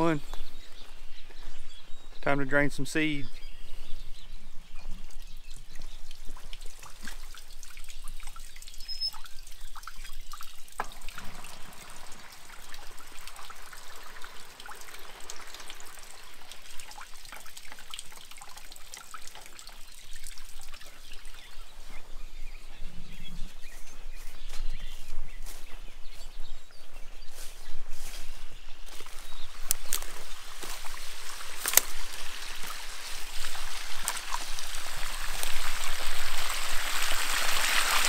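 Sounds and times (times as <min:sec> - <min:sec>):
water trickling and splashing on ground: 0:03.3 - 0:22.7, 0:27.3 - 0:38.0.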